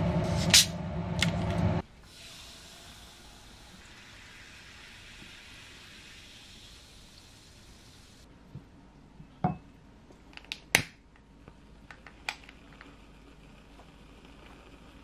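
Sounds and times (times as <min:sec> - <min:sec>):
carbonated drink fizzing: 0:02.0 - 0:08.1.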